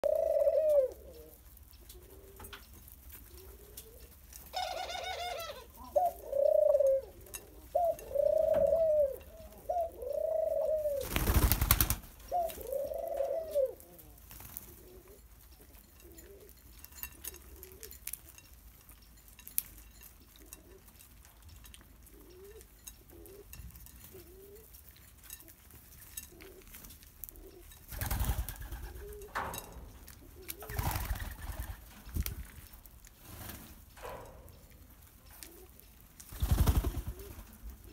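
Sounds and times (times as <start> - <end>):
doves cooing: 0.0 - 18.0, 20.4 - 21.0, 22.0 - 37.9
wings flapping: 10.9 - 12.6, 27.9 - 29.2, 30.5 - 32.4, 36.2 - 37.5.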